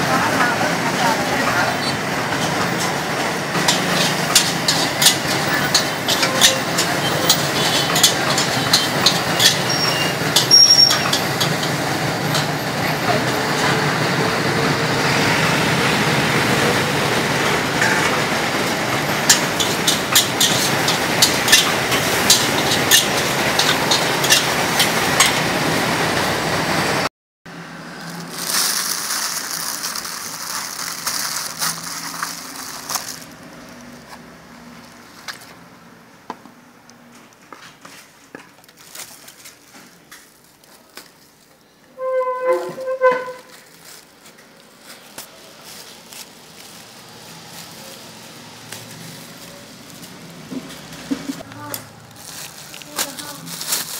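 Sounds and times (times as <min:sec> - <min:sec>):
street noise: 0:00.0 - 0:53.9
metal ladle scraping wok: 0:03.6 - 0:12.6, 0:18.9 - 0:25.5, 0:42.0 - 0:43.8.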